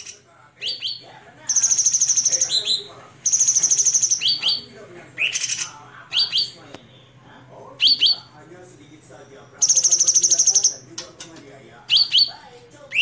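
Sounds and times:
songbird singing: 0:00.0 - 0:06.7, 0:07.8 - 0:08.3, 0:09.6 - 0:11.2, 0:11.9 - 0:13.0
faint steady low hum: 0:00.0 - 0:13.0.

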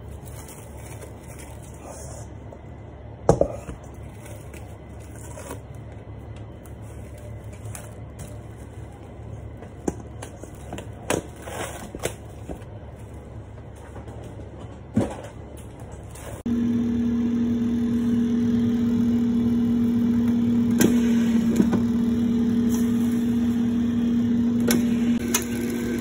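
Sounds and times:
cling film crinkling: 0:00.0 - 0:01.8.

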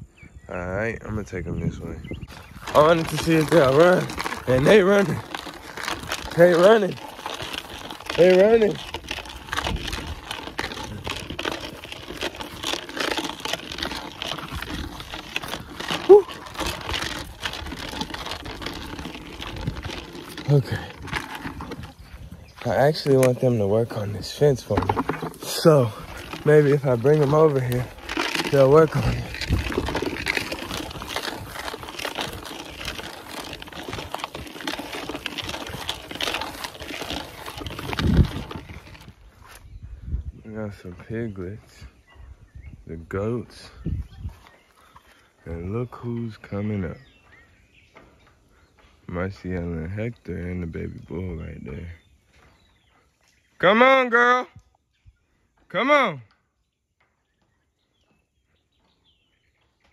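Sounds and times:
fabric brushing microphone: 0:02.2 - 0:39.7
footfalls running through grass: 0:02.3 - 0:39.6.

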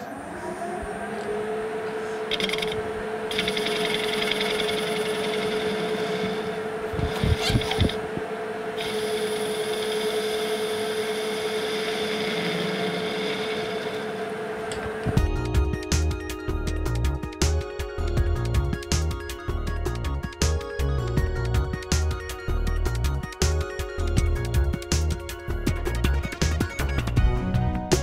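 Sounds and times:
lathe motor whine: 0:00.0 - 0:27.2.

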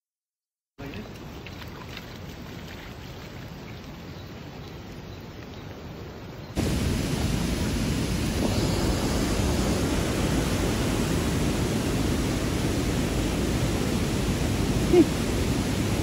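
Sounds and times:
river rushing over rocks: 0:06.6 - 0:16.0.

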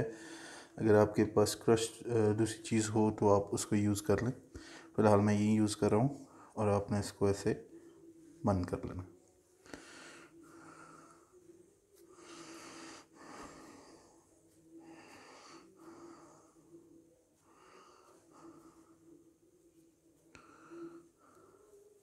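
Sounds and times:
slow breathing: 0:00.0 - 0:00.8, 0:04.5 - 0:05.0, 0:09.6 - 0:19.4, 0:20.1 - 0:22.0
faint steady hum: 0:00.0 - 0:22.0.

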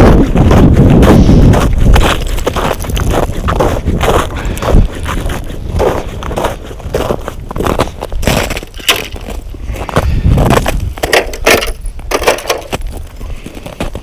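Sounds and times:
boots crunching through snow: 0:00.0 - 0:11.2, 0:12.6 - 0:14.0.

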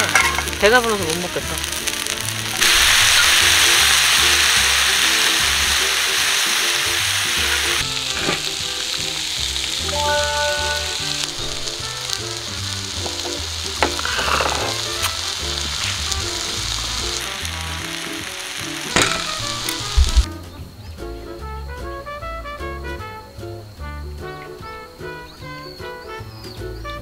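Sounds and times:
background music: 0:00.0 - 0:02.6, 0:03.5 - 0:27.0
food sizzling in a pan: 0:00.0 - 0:20.3.

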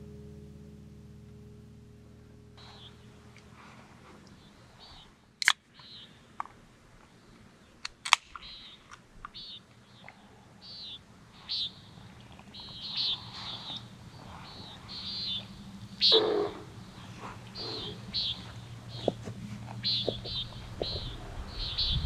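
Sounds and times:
short high bird calls: 0:02.6 - 0:06.3, 0:08.4 - 0:22.0
sharp clicks: 0:05.4 - 0:06.6, 0:07.8 - 0:10.2.

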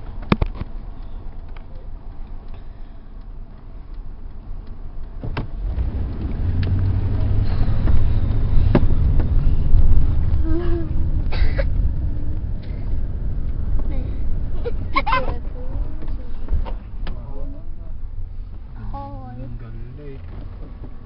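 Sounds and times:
car engine and road rumble: 0:00.0 - 0:21.0
sharp knocks: 0:08.6 - 0:09.4.

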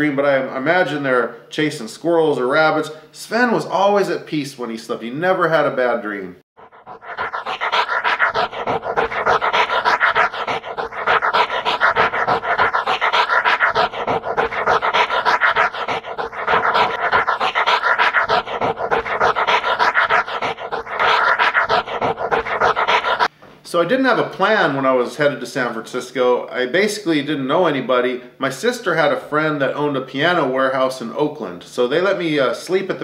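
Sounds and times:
dog panting: 0:06.6 - 0:23.3.

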